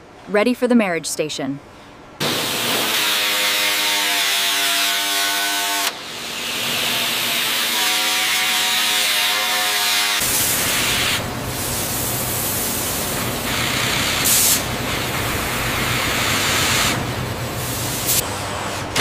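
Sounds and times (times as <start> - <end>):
machinery hiss: 10.1 - 18.2.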